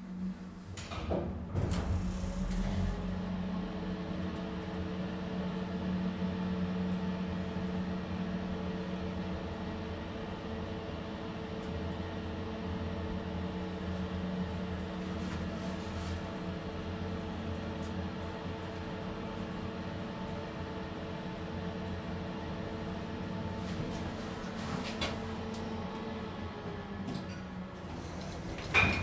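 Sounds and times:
elevator hydraulic drive hum: 0:00.0 - 0:04.8.

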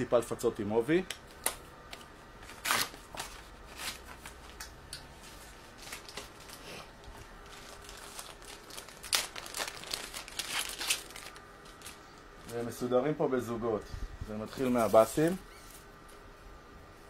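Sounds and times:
packaging crinkling and tearing: 0:02.4 - 0:04.7, 0:05.3 - 0:12.3, 0:14.5 - 0:15.9.

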